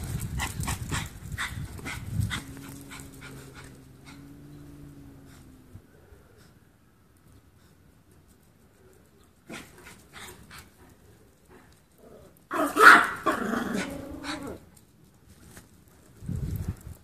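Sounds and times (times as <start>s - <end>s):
small dog barking and growling: 12.0s - 14.7s.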